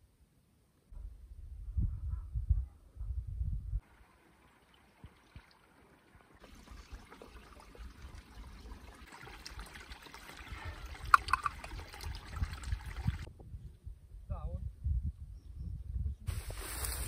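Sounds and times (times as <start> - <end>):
gurgle of escaping air: 3.8 - 13.3
water trickling: 3.8 - 13.3.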